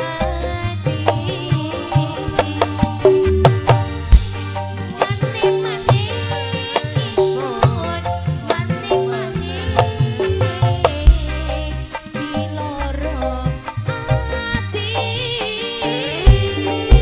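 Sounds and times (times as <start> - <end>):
woman singing: 0.0 - 4.1, 4.8 - 17.0
electric bass: 0.0 - 17.0
guitar: 0.0 - 17.0
hand drum beat: 0.2 - 11.7, 16.2 - 17.0.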